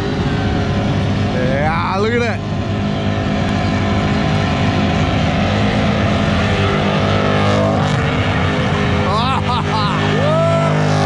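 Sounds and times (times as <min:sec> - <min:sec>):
car engine revving high: 0:00.0 - 0:11.0.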